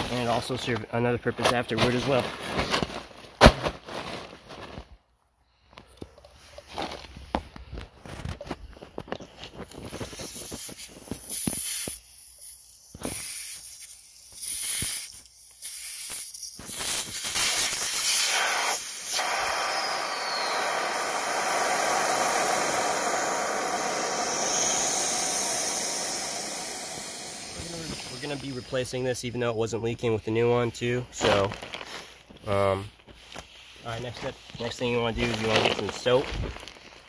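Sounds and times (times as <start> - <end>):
air hissing from tire valve: 9.6 - 29.2.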